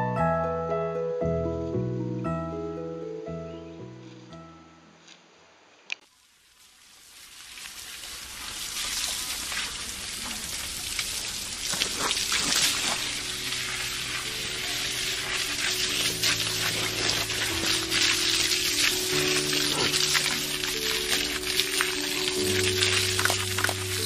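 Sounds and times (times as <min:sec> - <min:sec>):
soft sustained music notes: 0:00.0 - 0:05.0, 0:12.4 - 0:24.0
rain on wet ground and foliage: 0:05.9 - 0:24.0.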